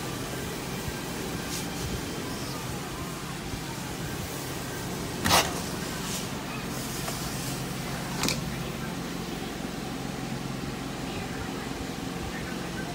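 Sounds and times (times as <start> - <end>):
carpet cleaner suction: 0.0 - 8.2.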